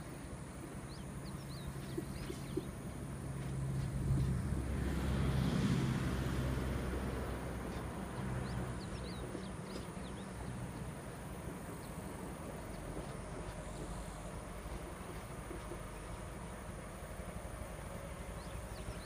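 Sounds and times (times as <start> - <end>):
distant diesel locomotive drone: 0.0 - 19.0.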